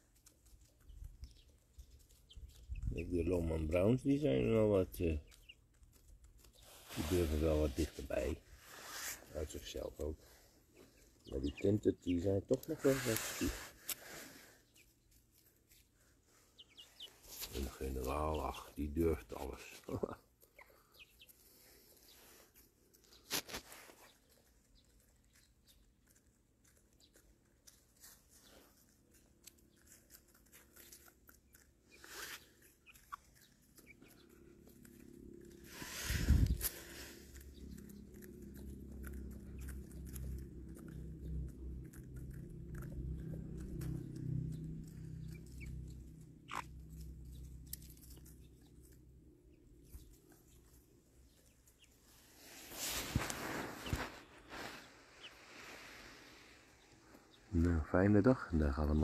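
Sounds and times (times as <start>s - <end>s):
chickens scratching in wood chips: 0.0s - 59.0s
rustle in litter: 6.3s - 11.8s, 12.5s - 20.0s, 21.1s - 26.0s, 26.9s - 40.6s, 49.9s - 57.4s.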